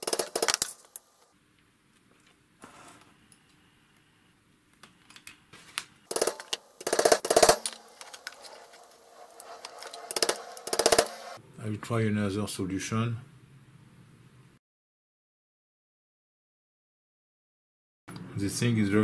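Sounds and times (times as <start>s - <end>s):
hammer tapping metal: 6.1s - 11.4s.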